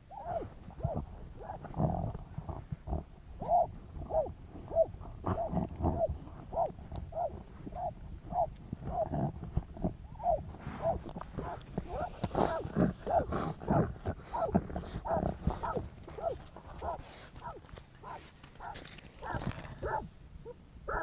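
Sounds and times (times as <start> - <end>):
dog barking: 3.4 - 9.1, 10.2 - 21.0.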